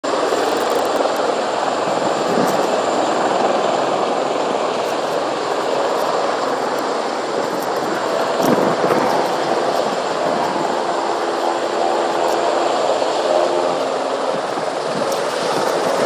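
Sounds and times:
helicopter rotors and engines droning: 0.0 - 16.0
thin high whine: 0.0 - 16.0.

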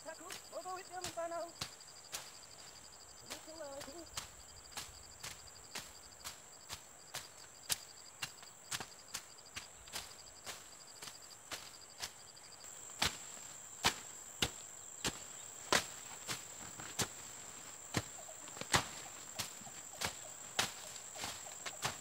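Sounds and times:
insects droning: 0.0 - 22.0
pulsing insect chirp: 0.0 - 22.0
machete slashing through brush: 18.0 - 22.0.

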